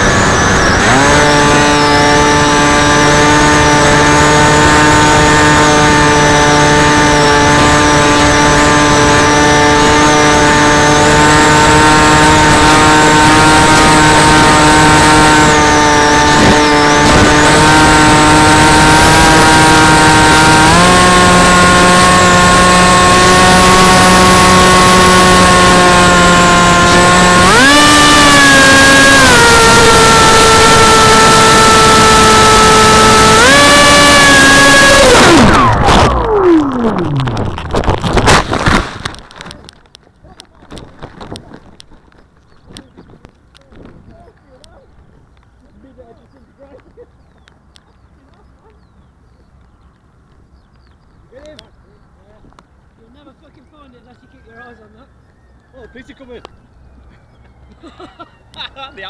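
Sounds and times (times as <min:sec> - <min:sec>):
model aircraft motor whining: 0:00.0 - 0:44.1.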